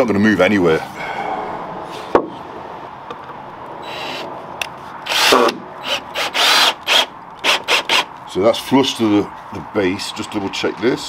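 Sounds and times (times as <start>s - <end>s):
drill driving screw into wood: 3.8s - 4.3s, 5.0s - 8.1s.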